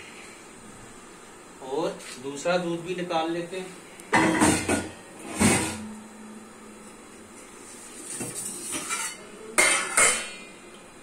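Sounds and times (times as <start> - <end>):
steel kitchenware clanking: 8.5 - 10.4.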